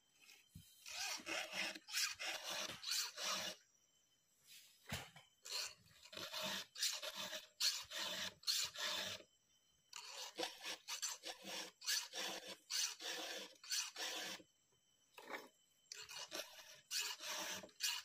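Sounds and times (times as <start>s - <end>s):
hand file rasping chainsaw chain: 0.8s - 3.6s, 5.5s - 9.2s, 10.0s - 14.4s, 15.9s - 18.0s.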